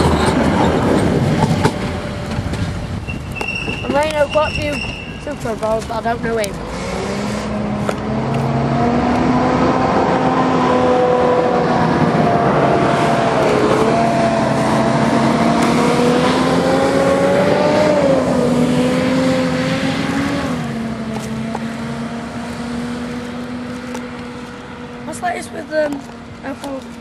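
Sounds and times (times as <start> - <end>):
tram motor whine: 0.0 - 5.6
wheels rumbling on rail: 0.0 - 27.0.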